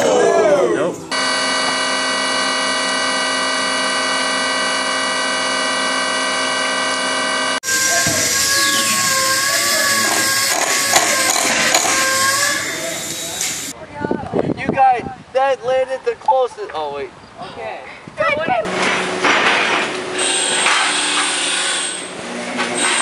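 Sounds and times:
wavering mechanical whine: 0:00.0 - 0:13.7
milling machine whine: 0:01.1 - 0:13.7
mechanical knocks: 0:10.0 - 0:12.2.

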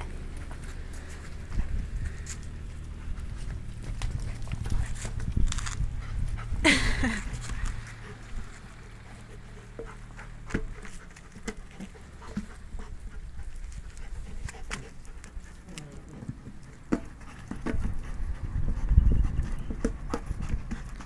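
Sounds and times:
low rumble: 0:00.0 - 0:11.0
teeth and paws on rubber tyre: 0:00.0 - 0:21.0.

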